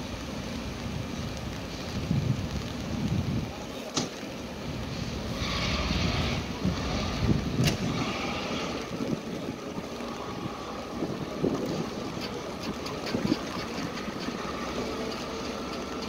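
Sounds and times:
diesel locomotive engine rumble: 0.0 - 16.0.

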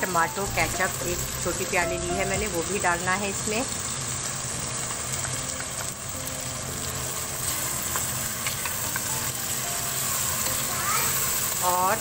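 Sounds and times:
chicken sizzling in a pan: 0.0 - 12.0
spatula ticks: 4.8 - 6.2, 7.8 - 9.4.

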